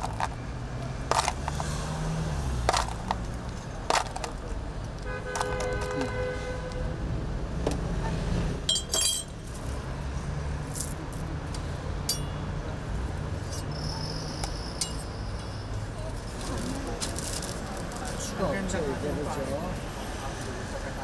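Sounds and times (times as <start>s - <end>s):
street traffic rumble: 0.0s - 21.0s
metal spoon clinking: 8.7s - 9.3s, 12.1s - 12.4s, 14.8s - 15.1s.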